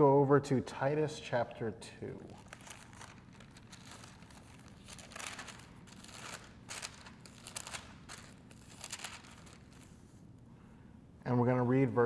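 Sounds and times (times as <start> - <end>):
book pages rustling: 2.2 - 10.2.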